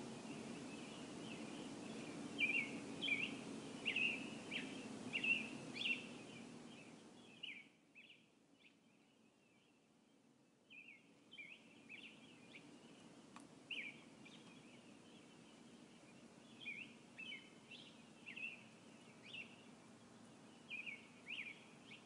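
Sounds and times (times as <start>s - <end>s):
faint birdsong chirps: 0.0s - 22.0s
low steady hum: 0.0s - 22.0s.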